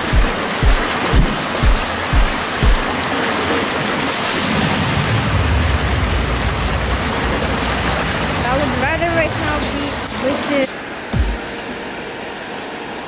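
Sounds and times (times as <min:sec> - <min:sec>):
low thumps: 0:00.0 - 0:03.0
rushing river water: 0:00.0 - 0:13.0
low rumble: 0:04.3 - 0:10.4.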